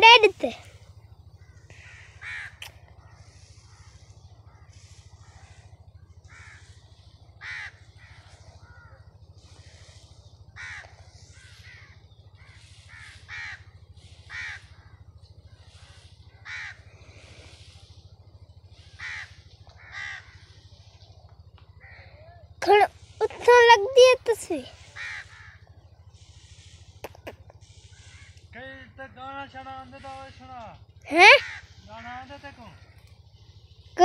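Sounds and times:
steady low hum: 0.0 - 34.0
crow cawing: 1.4 - 9.9, 10.6 - 15.0, 15.8 - 17.6, 18.7 - 20.7, 21.7 - 22.4, 24.8 - 25.7, 27.0 - 28.4, 31.1 - 31.8.

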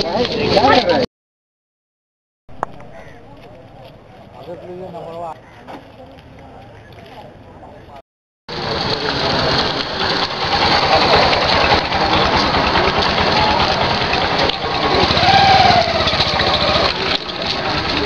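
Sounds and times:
engine idling: 8.5 - 18.0.

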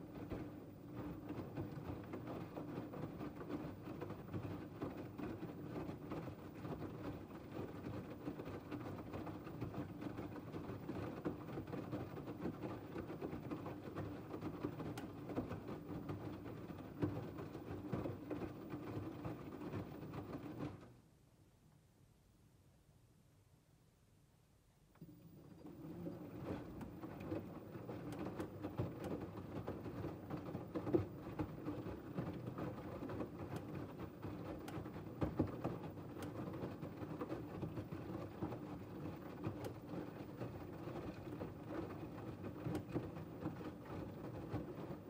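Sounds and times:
washing machine motor hum: 0.0 - 21.0, 25.0 - 45.0.

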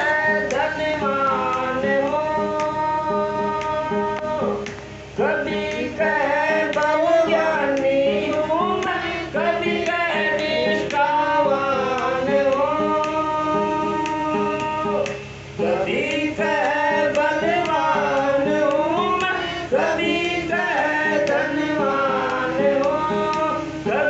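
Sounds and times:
man singing devotional song: 0.0 - 24.0
percussive clicks: 3.6 - 5.0, 12.0 - 13.2.

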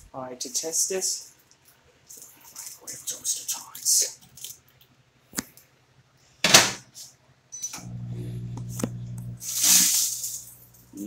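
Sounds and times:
microwave oven humming: 7.7 - 11.0.

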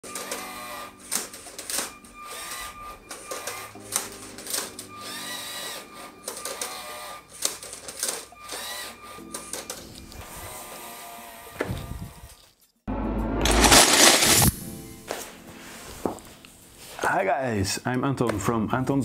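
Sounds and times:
robot motors whining: 8.4 - 12.4.

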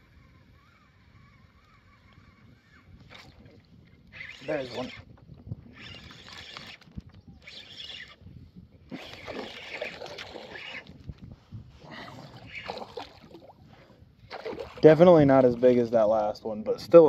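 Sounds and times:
fish thrashing and splashing: 8.9 - 11.0, 12.1 - 13.6, 14.3 - 15.0.

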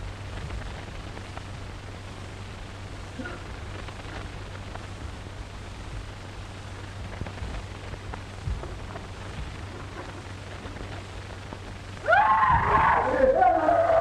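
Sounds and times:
film soundtrack hiss and hum: 0.0 - 14.0
person screaming: 12.0 - 14.0.

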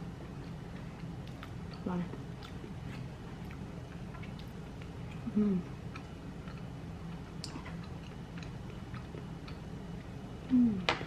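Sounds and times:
chewing: 0.2 - 10.1
person humming: 5.2 - 5.7, 10.5 - 10.9.

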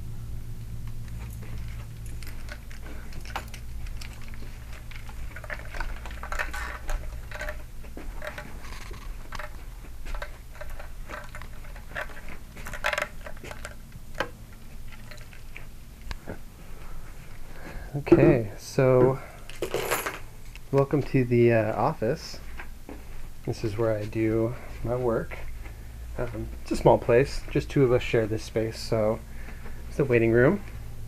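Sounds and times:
low electrical hum: 0.0 - 31.0
footsteps: 0.9 - 13.8, 20.9 - 29.8.

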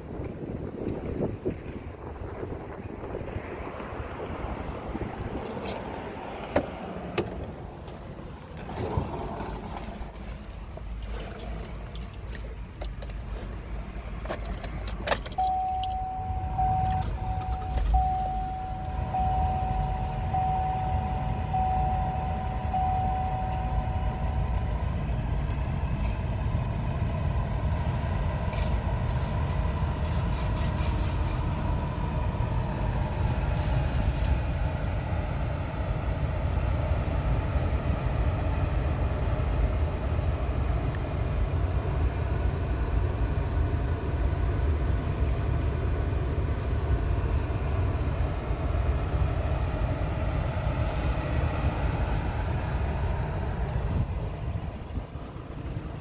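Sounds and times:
car engine idling: 0.0 - 56.0
car door and keys clicking: 14.2 - 18.8
car warning chime: 15.3 - 24.8.

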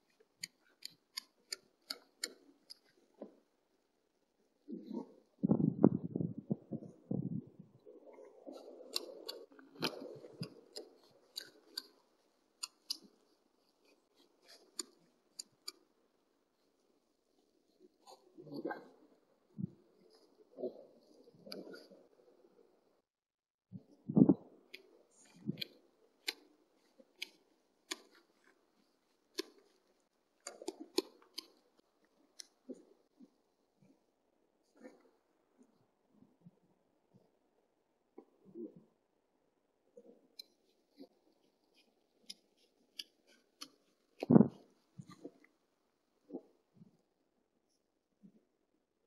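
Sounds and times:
sharp clicks and cracks: 0.0 - 3.2, 8.6 - 16.0, 24.7 - 28.6, 29.3 - 32.8, 40.3 - 45.6
foxes crunching and chewing: 0.0 - 3.4, 8.2 - 18.3, 24.6 - 33.4, 40.0 - 45.6
muffled low rumble: 5.4 - 8.4.

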